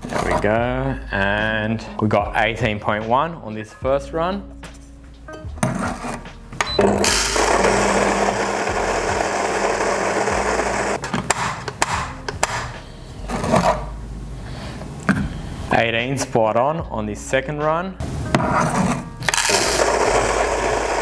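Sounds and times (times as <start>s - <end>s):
electric coffee grinder whirring: 7.0s - 11.0s, 19.3s - 21.0s.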